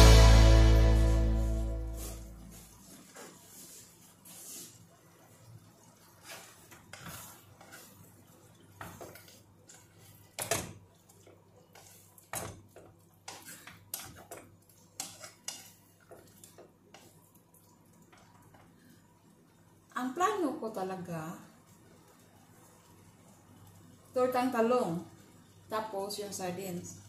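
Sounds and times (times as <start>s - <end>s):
wooden spatula scraping a pot: 6.0s - 10.5s, 11.1s - 14.4s, 15.0s - 17.2s.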